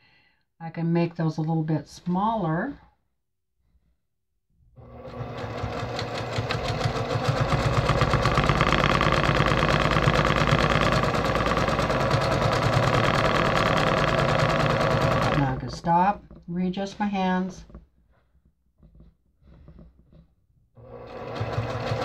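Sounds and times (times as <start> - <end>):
sewing machine needle clattering: 5.1 - 16.5, 20.9 - 22.0.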